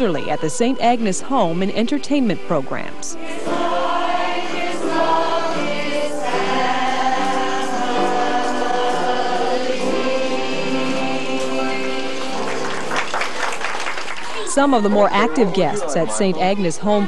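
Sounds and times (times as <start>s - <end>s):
choir singing long notes: 0.0s - 1.7s, 3.2s - 13.7s.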